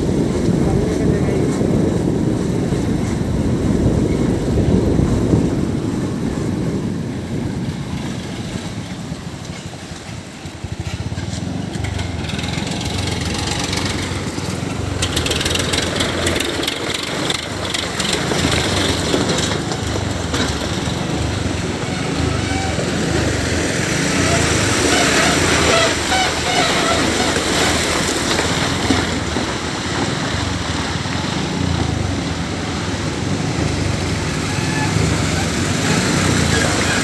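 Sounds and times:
dump truck engines rumbling: 0:00.0 - 0:37.0
wind and road noise: 0:00.0 - 0:37.0
motorcycle engine running: 0:06.3 - 0:29.5.

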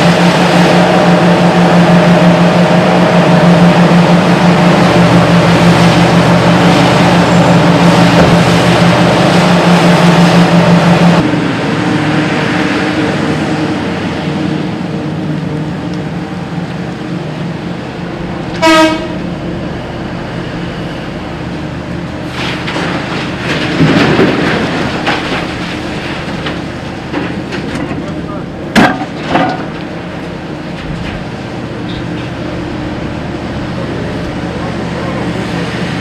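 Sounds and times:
excavator engines droning: 0:00.0 - 0:36.0
short horn toot: 0:18.6 - 0:19.2.

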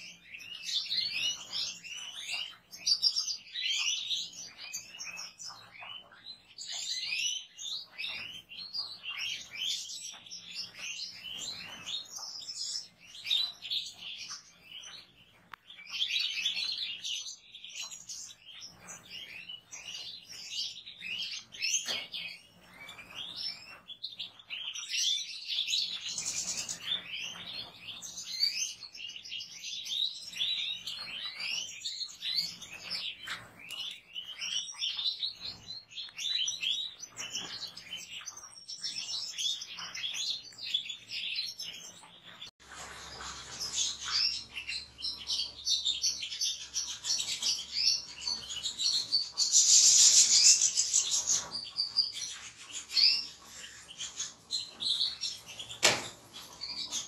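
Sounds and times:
flock of finches chirping: 0:00.0 - 0:57.0.

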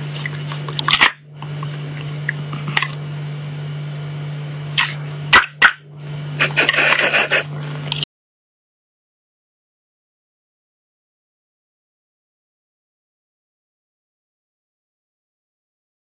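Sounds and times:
steady low hum: 0:00.0 - 0:08.1.

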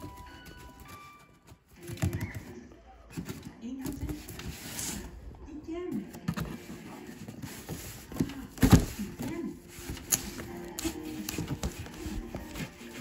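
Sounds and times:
cardboard box knocking and scraping: 0:06.2 - 0:10.4.

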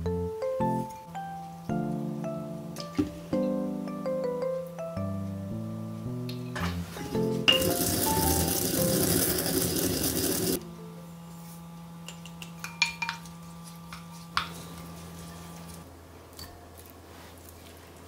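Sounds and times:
dishes and utensils clinking: 0:06.3 - 0:07.9.

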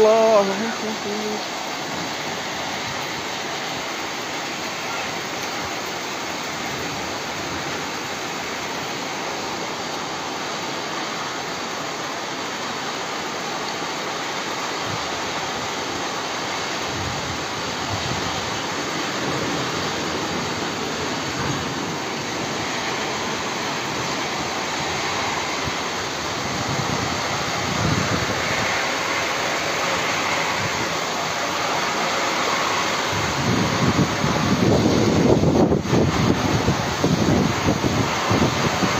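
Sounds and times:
heavy rain pouring: 0:00.0 - 0:38.9
wind buffeting microphone: 0:16.8 - 0:29.4, 0:32.8 - 0:38.9.

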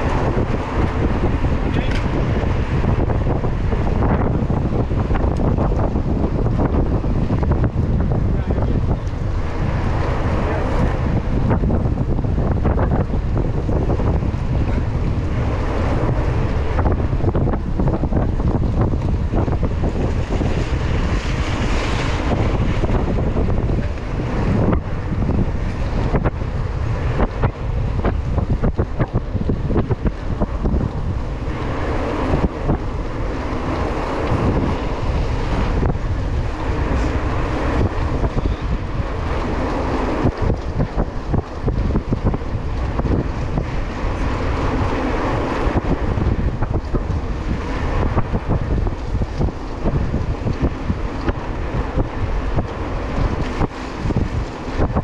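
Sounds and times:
bike rattling: 0:00.0 - 0:55.0
tyres hissing on wet asphalt: 0:00.0 - 0:55.0
wind on microphone: 0:00.0 - 0:55.0.

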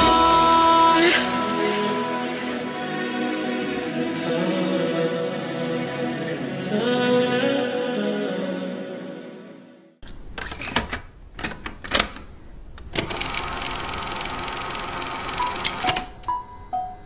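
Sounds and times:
pop song: 0:00.0 - 0:09.7.

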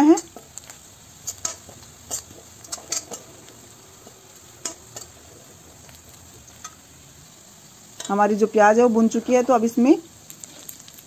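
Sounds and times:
onion sizzling in a pan: 0:00.0 - 0:11.0
metal spatula scraping a pan: 0:01.2 - 0:06.8.

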